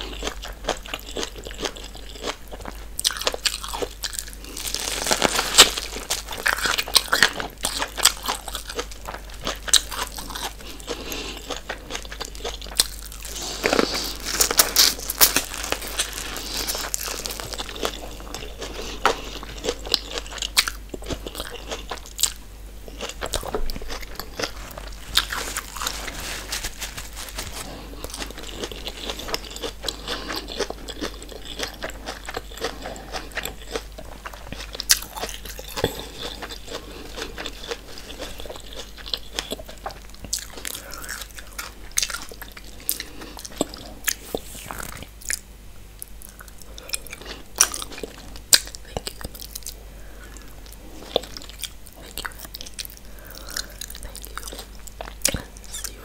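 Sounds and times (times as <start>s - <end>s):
chewing corn crunches: 0.0s - 56.0s.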